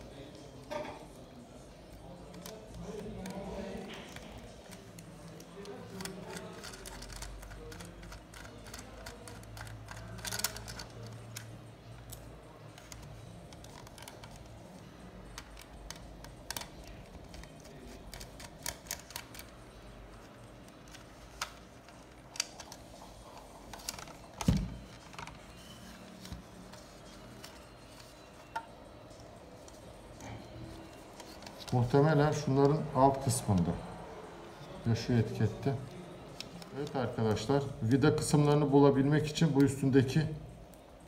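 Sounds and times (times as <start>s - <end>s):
screwdriver clicking and scraping plastic: 2.0s - 28.7s, 29.6s - 32.8s.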